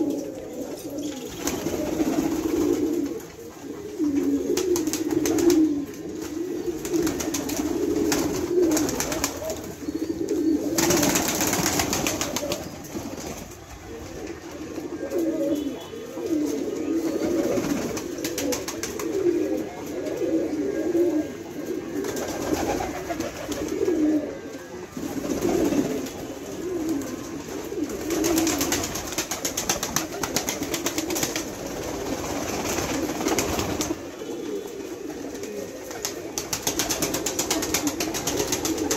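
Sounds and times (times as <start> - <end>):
pigeons cooing: 0.0 - 38.9.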